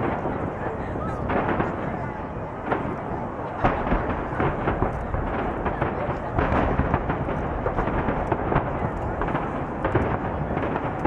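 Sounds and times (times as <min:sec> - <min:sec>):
distant fireworks booming: 0:00.0 - 0:11.0
sharp firework bangs: 0:00.0 - 0:11.0.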